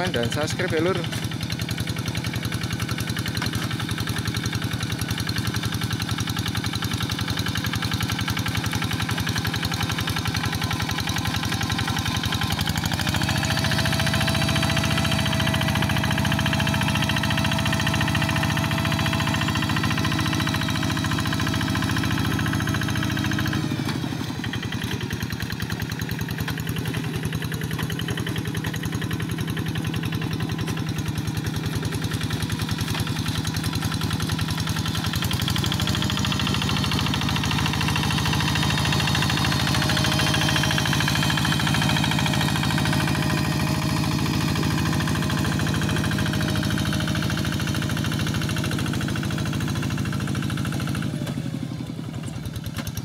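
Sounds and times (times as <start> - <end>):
diesel engine running: 0.0 - 53.0.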